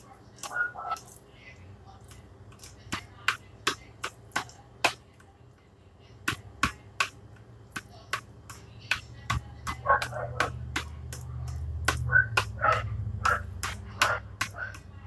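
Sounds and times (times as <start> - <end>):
knife chopping on cutting board: 8.1 - 15.0.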